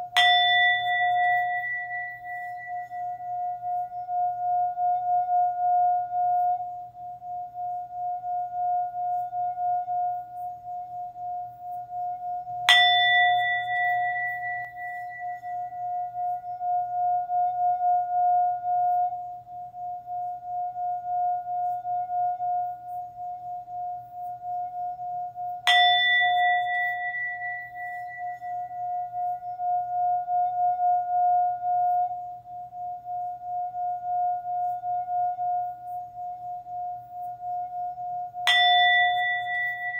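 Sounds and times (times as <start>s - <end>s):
singing bowl ringing tone: 0.0s - 39.9s
higher singing bowl struck: 0.1s - 4.6s, 12.7s - 16.6s, 25.6s - 29.6s, 38.4s - 39.9s.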